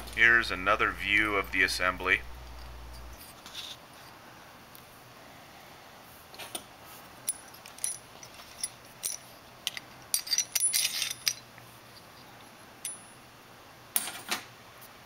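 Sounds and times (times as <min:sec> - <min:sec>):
small metal parts clicking: 0:07.3 - 0:11.5.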